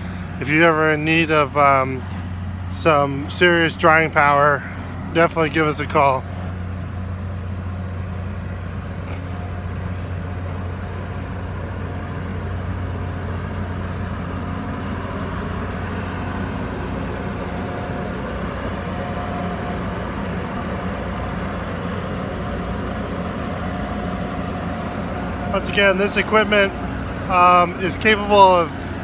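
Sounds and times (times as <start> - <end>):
dehumidifier droning: 0.0 - 29.0
faint machine whine: 0.0 - 29.0.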